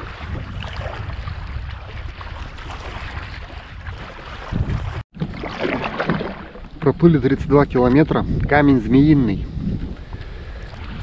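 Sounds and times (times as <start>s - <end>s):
water splashing around raft: 0.0s - 8.1s
wind rumbling on microphone: 0.0s - 11.0s.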